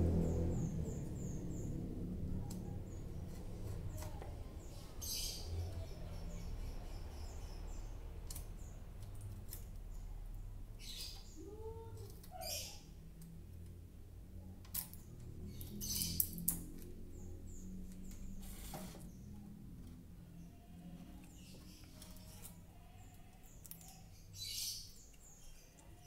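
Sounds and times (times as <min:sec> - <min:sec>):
small bird chirps: 0:00.5 - 0:13.0, 0:14.8 - 0:19.4, 0:21.2 - 0:26.0
scratchy rasps on wooden cage: 0:18.2 - 0:19.3, 0:20.9 - 0:24.8.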